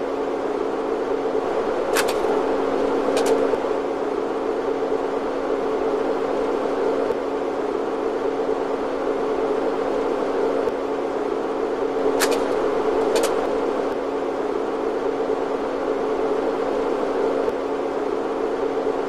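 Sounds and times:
low even hum: 0:00.0 - 0:19.0
mechanical whir: 0:01.2 - 0:04.5, 0:11.6 - 0:14.1
sharp clicks: 0:01.9 - 0:02.4, 0:03.1 - 0:03.5, 0:12.2 - 0:13.4.

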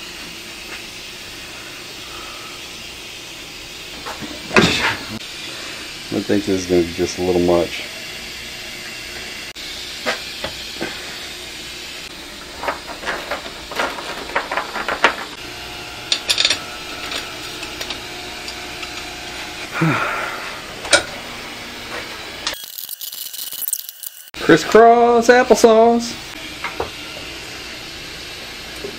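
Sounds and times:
metal tools clinking and clattering: 0:16.1 - 0:19.1.

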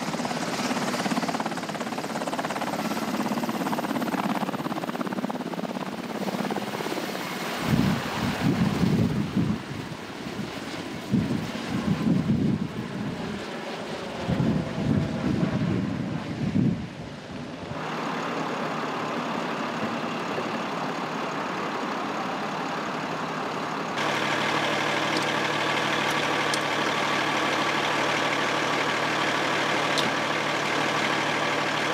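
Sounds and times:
diesel engine idling: 0:17.8 - 0:31.9.

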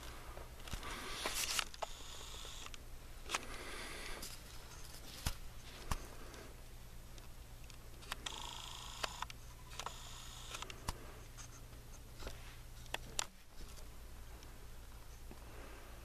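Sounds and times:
camera handling clicks and rubbing: 0:00.6 - 0:03.4.

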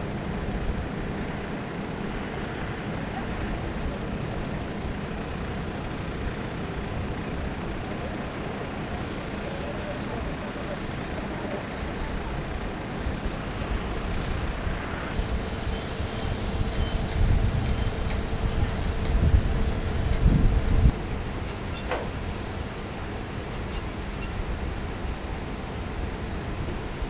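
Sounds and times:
truck engine and pump running: 0:00.0 - 0:27.0
loud low rumble: 0:15.2 - 0:21.2.

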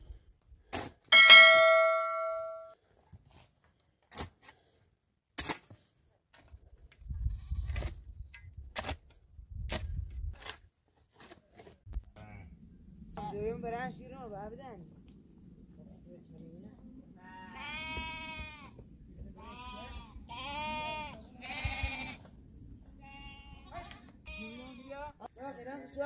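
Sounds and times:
bright bell ding: 0:01.1 - 0:02.8
hand hoe digging stony earth: 0:05.4 - 0:06.9, 0:08.7 - 0:11.9
sheep and goats bleating: 0:17.2 - 0:18.8, 0:19.4 - 0:22.3, 0:23.0 - 0:25.3.

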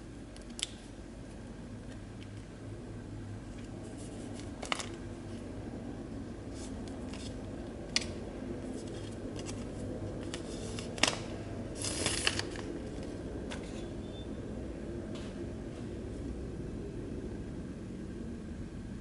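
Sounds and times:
low steady hum: 0:00.0 - 0:19.0
plastic film crinkling: 0:08.7 - 0:13.1.

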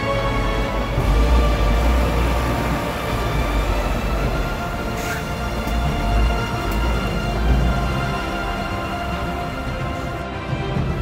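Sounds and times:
background music: 0:00.0 - 0:11.0
truck rumbling past: 0:00.0 - 0:11.0.

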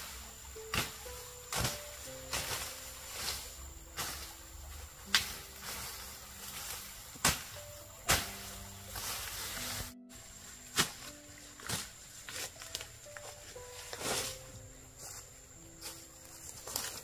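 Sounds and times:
soft background music: 0:00.0 - 0:17.0.

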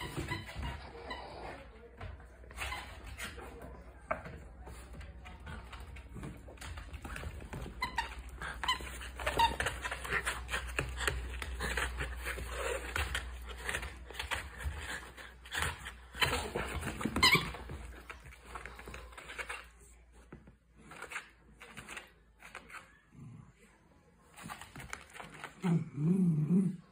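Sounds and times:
squeaky toy squeaks: 0:17.1 - 0:17.7.

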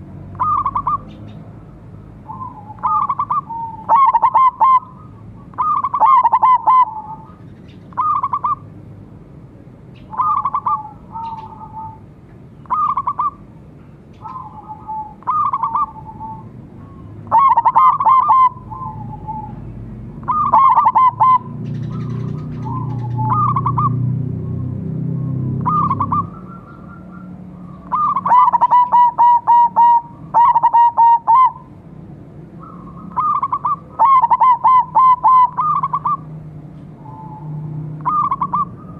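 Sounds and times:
doves cooing trills: 0:00.0 - 0:08.8, 0:10.0 - 0:38.9.

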